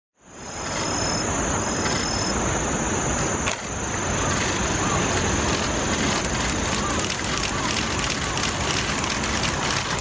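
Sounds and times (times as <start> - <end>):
low rushing noise: 0.2 - 10.0
high-pitched insect trill: 0.3 - 3.1.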